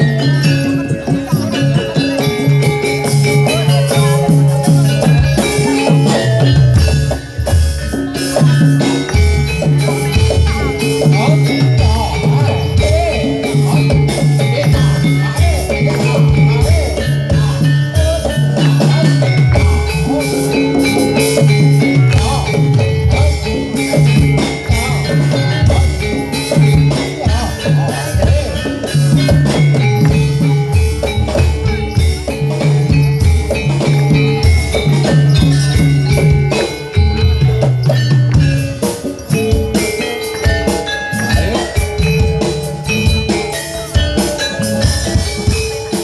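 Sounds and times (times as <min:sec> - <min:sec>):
metal mallet percussion: 0:00.0 - 0:46.0
steady drumming: 0:00.0 - 0:46.0
struck metallophones melody: 0:00.0 - 0:46.0.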